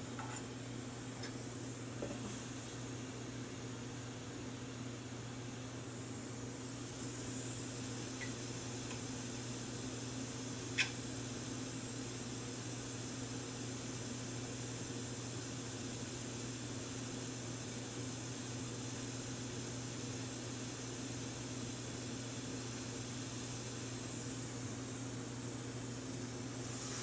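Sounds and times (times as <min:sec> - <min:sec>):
steady hiss: 0:00.0 - 0:27.0.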